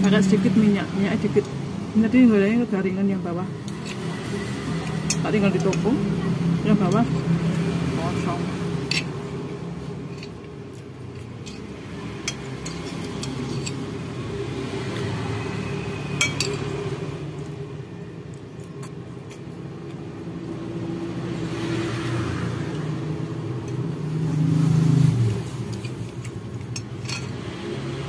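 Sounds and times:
passing traffic rumble: 0:00.0 - 0:28.0
metal spoon clinking ceramic bowl: 0:08.8 - 0:09.2, 0:11.2 - 0:13.9, 0:16.2 - 0:16.8, 0:26.6 - 0:27.4.

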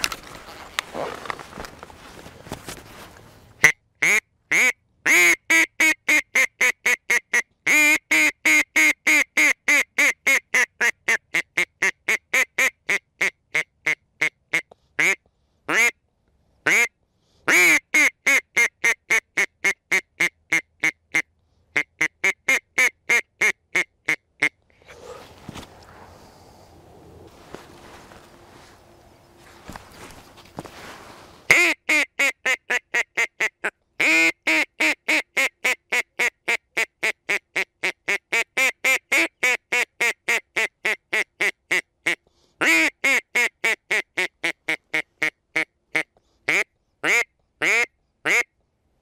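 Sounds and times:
duck quacking: 0:03.6 - 0:15.9, 0:31.5 - 0:48.5.

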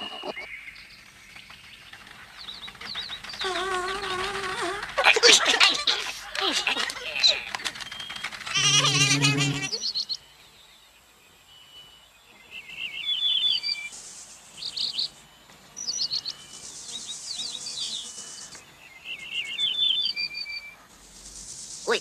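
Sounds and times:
cartoon bird chirps and trills: 0:03.4 - 0:09.8
brief voiced cry: 0:08.5 - 0:09.8
high hiss: 0:20.9 - 0:22.0.

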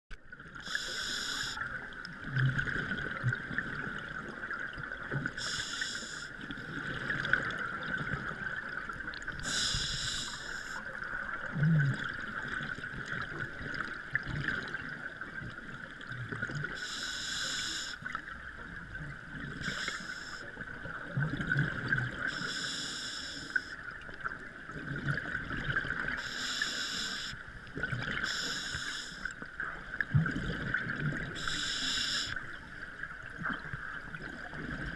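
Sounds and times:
diver breathing through regulator: 0:00.6 - 0:01.6, 0:05.4 - 0:06.4, 0:09.4 - 0:10.8, 0:16.8 - 0:18.0, 0:19.6 - 0:20.4, 0:22.3 - 0:23.7, 0:26.2 - 0:27.4, 0:28.2 - 0:29.3, 0:31.4 - 0:32.4
bubbling from exhaled air: 0:11.4 - 0:14.9, 0:30.0 - 0:31.4.

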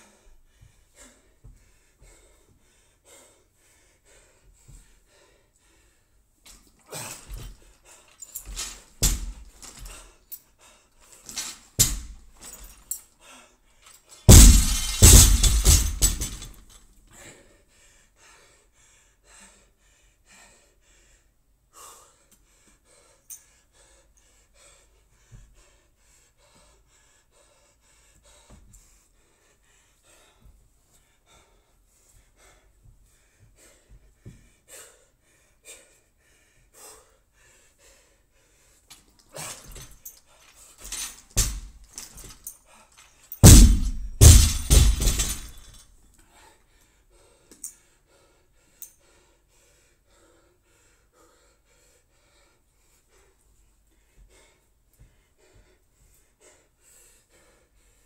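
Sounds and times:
faint gasping breaths: 0:00.0 - 0:15.0, 0:16.0 - 0:43.4, 0:44.5 - 0:58.0
barbell dropped on rubber floor: 0:14.3 - 0:16.6, 0:43.4 - 0:45.6.

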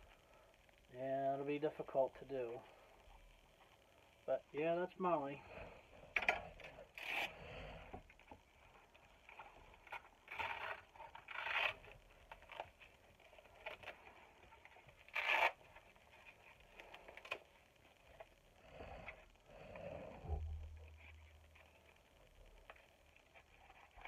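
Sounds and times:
plastic parts scraping and rustling: 0:08.2 - 0:18.3.

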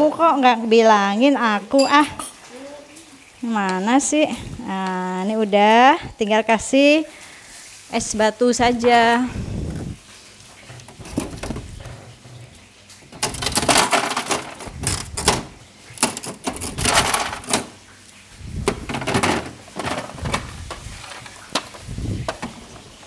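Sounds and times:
ice cubes clattering: 0:13.2 - 0:15.3, 0:16.0 - 0:17.7.

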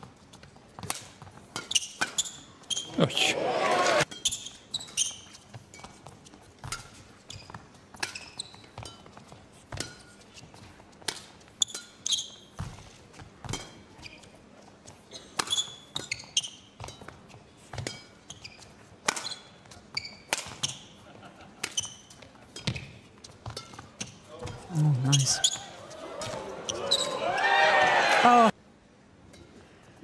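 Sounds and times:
shoes squeaking on court: 0:00.0 - 0:03.1, 0:03.7 - 0:27.2
rackets striking shuttlecock: 0:19.0 - 0:19.5, 0:20.3 - 0:20.8.

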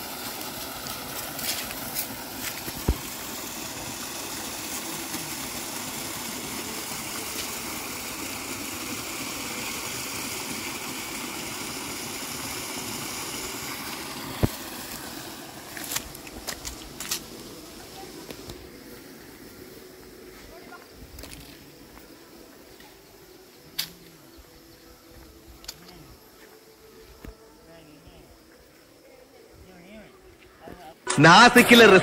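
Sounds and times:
waterfall splashing into pool: 0:00.0 - 0:18.6.

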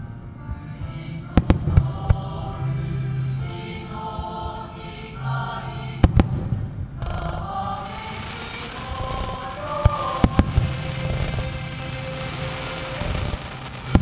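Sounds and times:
choral music: 0:00.0 - 0:14.0
firework shells bursting: 0:07.0 - 0:14.0.

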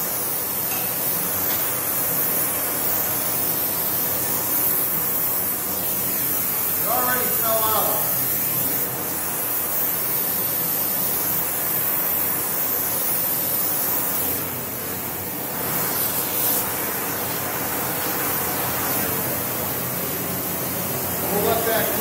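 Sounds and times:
gas torch hissing: 0:00.0 - 0:22.0.

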